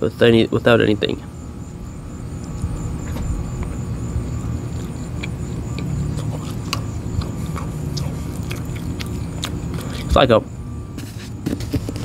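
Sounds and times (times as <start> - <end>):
steady low rumble: 0.9 - 11.0
person chewing: 4.4 - 10.2.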